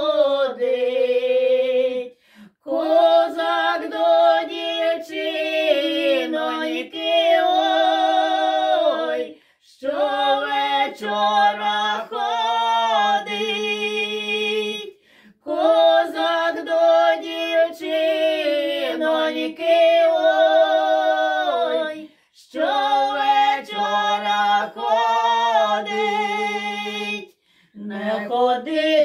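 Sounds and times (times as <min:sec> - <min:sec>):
two women singing unaccompanied: 0:00.0 - 0:29.0
singers breathing: 0:02.1 - 0:02.6, 0:09.3 - 0:09.6, 0:14.9 - 0:15.4, 0:22.0 - 0:22.4, 0:27.3 - 0:27.8.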